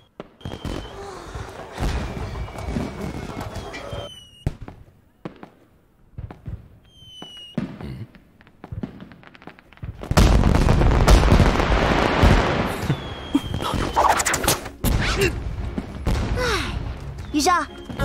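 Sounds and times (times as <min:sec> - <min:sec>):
firework whistles: 0:00.0 - 0:04.6, 0:06.8 - 0:07.6, 0:12.7 - 0:15.2
fireworks bangs and crackling: 0:00.0 - 0:18.0.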